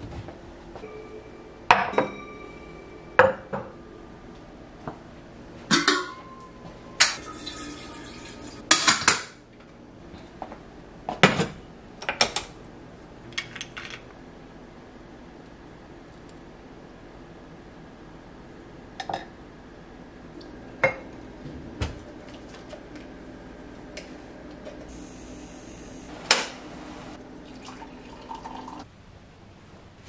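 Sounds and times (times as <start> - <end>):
dishes and jars clinking: 5.7 - 9.2.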